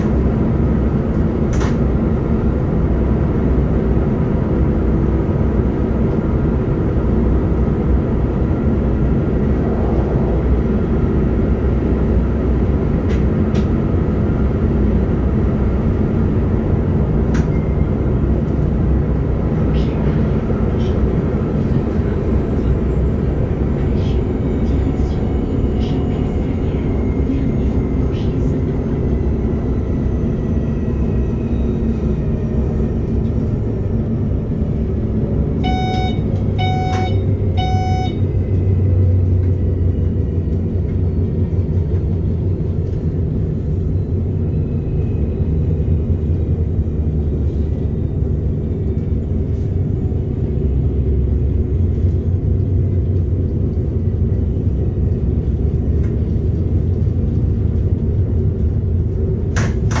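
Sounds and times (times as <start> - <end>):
electric train rumble: 0.0 - 60.0
short electronic beeps: 35.6 - 38.3.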